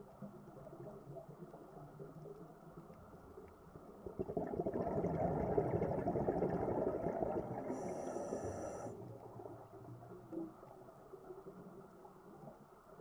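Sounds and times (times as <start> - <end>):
underwater bubbles rushing: 0.1 - 12.6.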